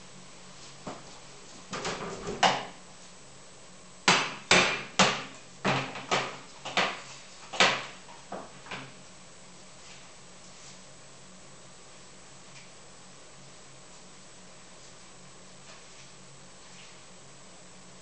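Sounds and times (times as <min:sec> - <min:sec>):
utensils knocking on counter: 0:04.1 - 0:07.0.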